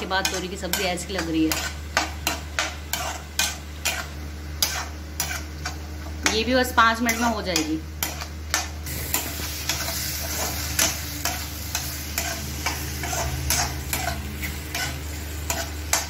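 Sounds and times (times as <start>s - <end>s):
frying sizzle: 0.0s - 16.0s
metal spatula scraping pan: 2.9s - 5.8s, 7.0s - 7.4s, 9.2s - 16.0s.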